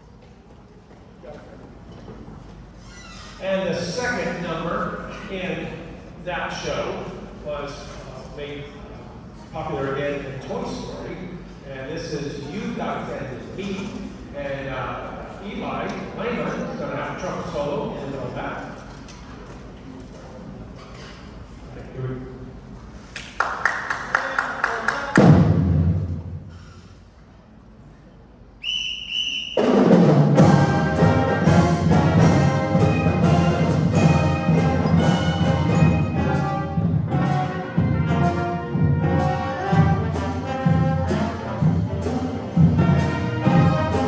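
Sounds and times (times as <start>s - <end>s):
loud drum hit: 25.1s - 26.6s, 29.6s - 44.0s
concert band with brass and drums: 25.1s - 26.8s, 28.9s - 44.0s.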